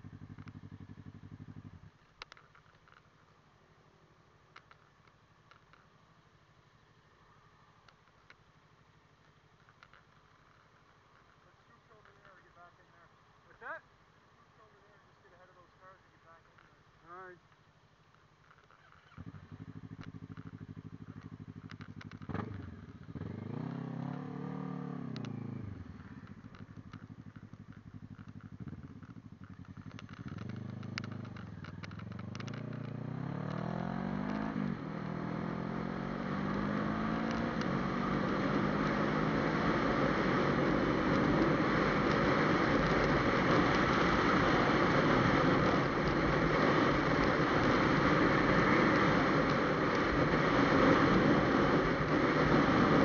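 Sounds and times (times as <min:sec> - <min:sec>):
motorcycle engine: 0:00.0 - 0:03.6, 0:16.3 - 0:53.0
wind and road noise: 0:00.0 - 0:53.0.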